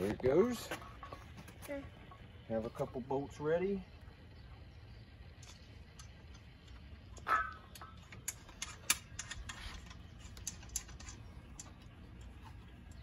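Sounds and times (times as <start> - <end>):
metal clink: 7.2 - 11.8.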